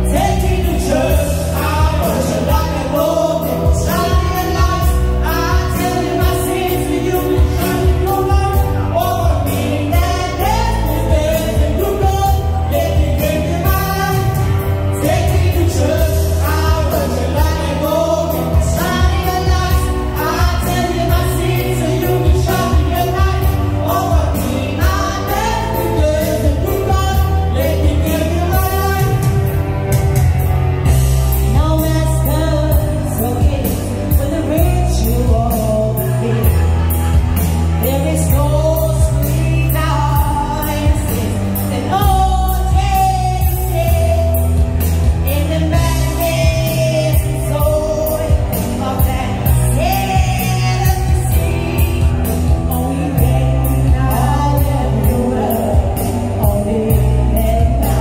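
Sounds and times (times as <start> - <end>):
woman singing into microphone: 0.0 - 30.0, 30.8 - 58.0
backing music with bass: 0.0 - 58.0.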